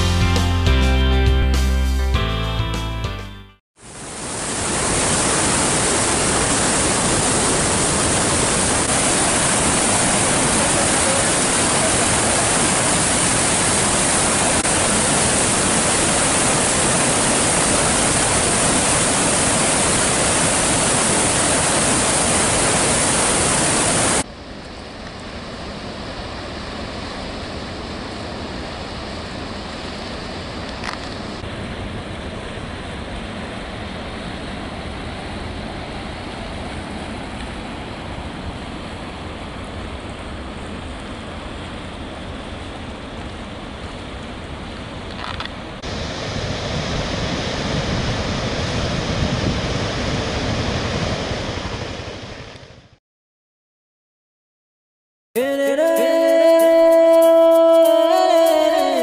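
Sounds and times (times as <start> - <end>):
water gushing from pipes: 4.4 - 24.2.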